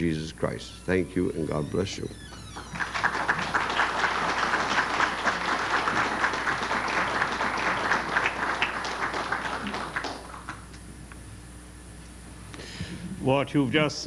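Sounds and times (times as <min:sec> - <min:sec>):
audience applauding: 0:02.2 - 0:10.7.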